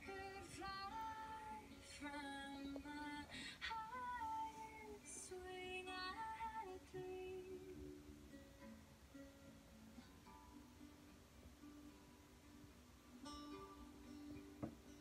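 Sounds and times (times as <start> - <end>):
woman singing gently: 0.0 - 7.9
plucked strings: 4.0 - 15.0.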